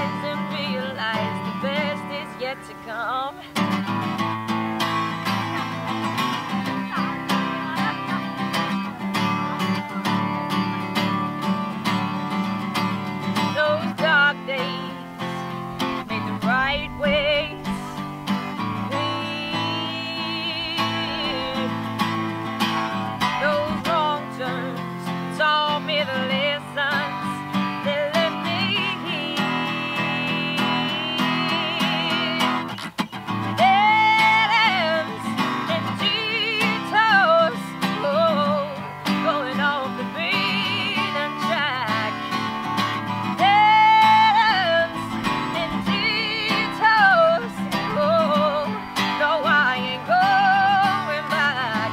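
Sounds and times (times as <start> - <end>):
acoustic guitar strumming: 0.0 - 51.9
woman singing country song: 0.0 - 51.9.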